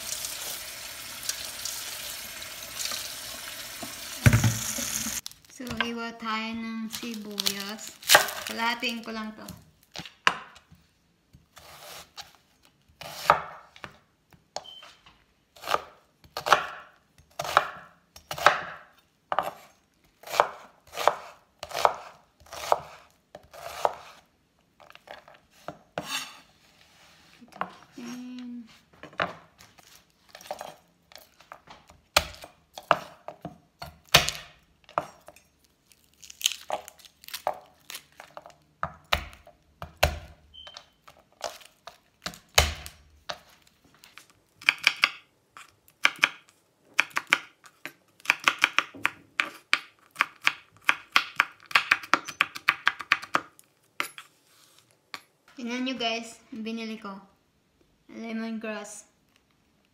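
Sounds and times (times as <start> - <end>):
knife chopping on wooden board: 17.4 - 24.2.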